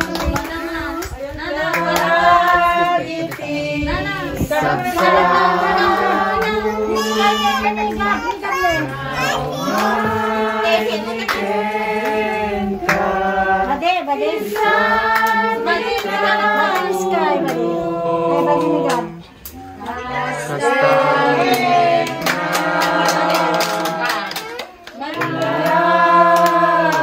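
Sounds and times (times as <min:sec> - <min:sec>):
hands clapping: 0:00.0 - 0:02.1, 0:21.5 - 0:27.0
voices singing over music: 0:00.0 - 0:27.0.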